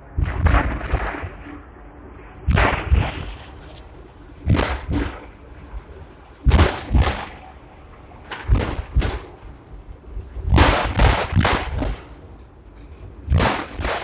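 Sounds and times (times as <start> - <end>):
tram rumble: 0.0 - 14.0.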